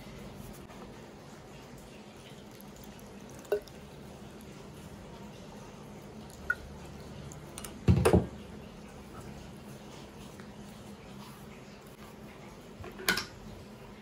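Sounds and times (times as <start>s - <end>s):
water dripping plinks: 1.4s - 4.6s, 5.2s - 9.0s.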